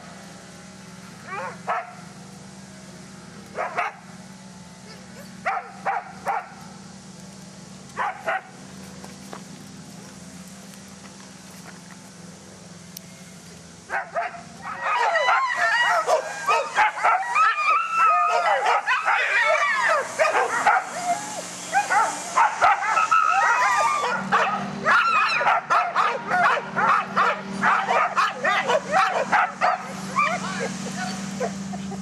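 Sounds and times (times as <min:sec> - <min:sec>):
sled dogs barking and howling: 0:01.2 - 0:02.1, 0:03.5 - 0:04.0, 0:04.8 - 0:06.6, 0:07.9 - 0:08.6, 0:13.9 - 0:32.0.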